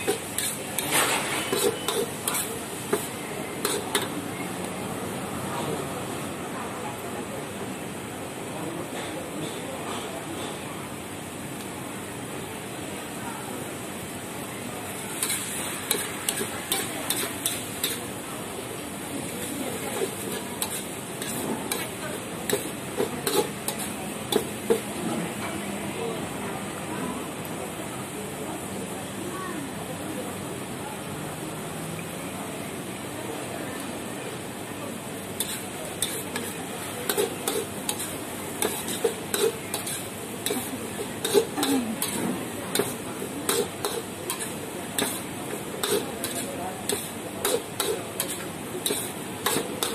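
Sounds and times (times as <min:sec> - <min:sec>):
metal ladle clanking against wok: 0:00.0 - 0:04.2, 0:37.1 - 0:45.2
frying sizzle: 0:00.0 - 0:09.0, 0:10.8 - 0:49.9.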